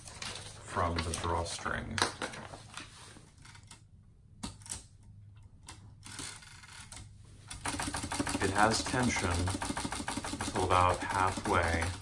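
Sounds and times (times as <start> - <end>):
typewriter clicks and clacks: 6.1 - 12.0.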